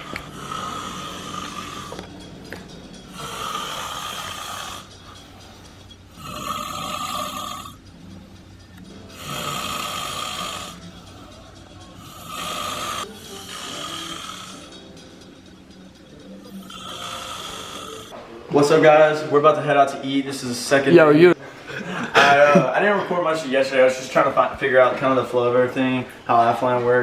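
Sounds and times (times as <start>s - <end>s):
man snoring: 0.0s - 2.1s, 3.1s - 5.1s, 6.1s - 7.8s, 9.1s - 11.0s, 12.0s - 14.7s, 16.5s - 18.1s.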